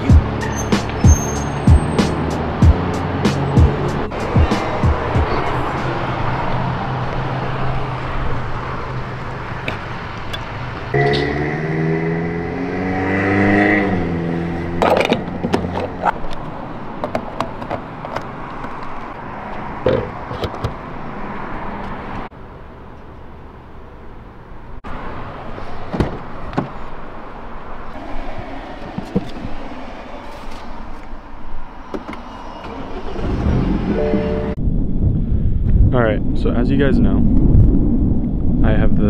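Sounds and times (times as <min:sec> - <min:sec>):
held pitched tone: 0:10.9 - 0:12.6.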